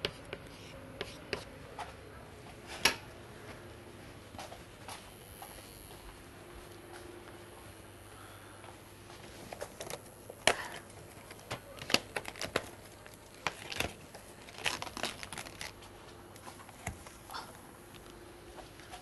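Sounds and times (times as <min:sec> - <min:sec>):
packaging rustling: 0:09.4 - 0:16.0.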